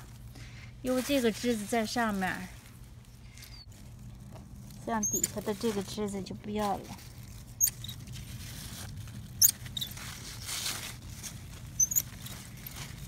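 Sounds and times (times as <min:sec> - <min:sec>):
leaves rustling: 0:00.0 - 0:13.0
pruning shears snipping: 0:04.9 - 0:05.8.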